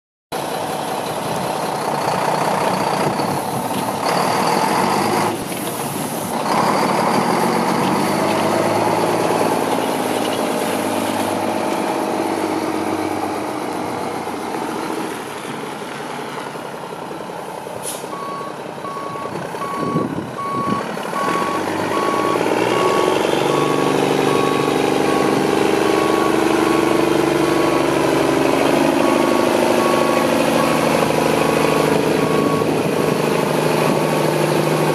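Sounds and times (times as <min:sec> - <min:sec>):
diesel truck engine running: 0:00.4 - 0:34.9
sharp air hiss: 0:17.8 - 0:18.1
reverse alarm beeping: 0:18.1 - 0:28.0, 0:29.0 - 0:30.9, 0:31.7 - 0:32.8.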